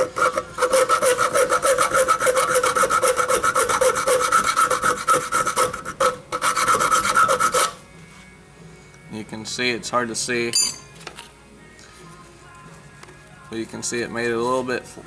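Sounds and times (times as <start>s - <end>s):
hand file rasping on metal: 0.0s - 7.8s.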